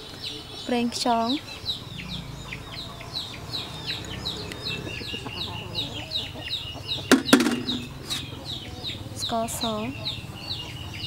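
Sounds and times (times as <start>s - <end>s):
chicks peeping: 0.0s - 11.0s
hen clucking: 1.1s - 11.0s.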